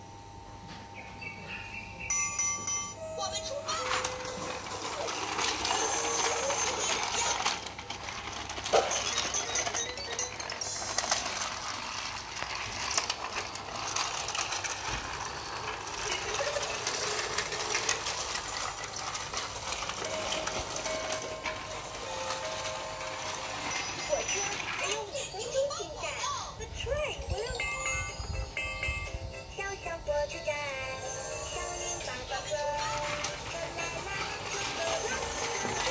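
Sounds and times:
electronic toy melody: 0:02.1 - 0:12.1, 0:12.7 - 0:25.6, 0:27.2 - 0:35.9
plastic toy rattling and clicking: 0:03.7 - 0:26.0, 0:31.0 - 0:35.9.

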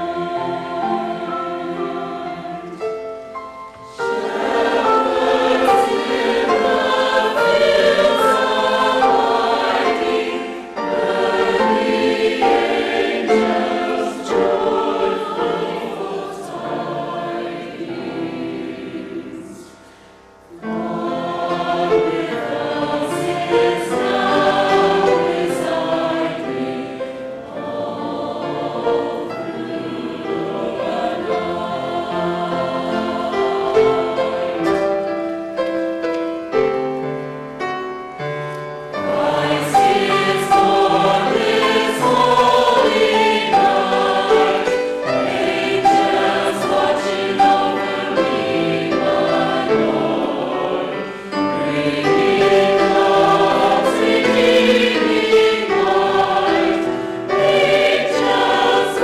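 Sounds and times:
mixed choir singing: 0:00.0 - 0:35.6, 0:38.9 - 0:59.0.

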